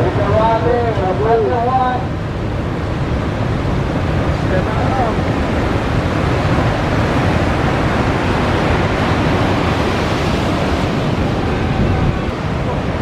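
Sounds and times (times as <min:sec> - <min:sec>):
ocean waves breaking: 0:00.0 - 0:13.0.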